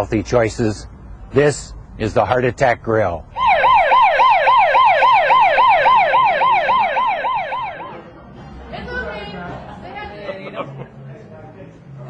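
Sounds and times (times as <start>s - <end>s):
emergency siren yelping: 3.3s - 8.0s.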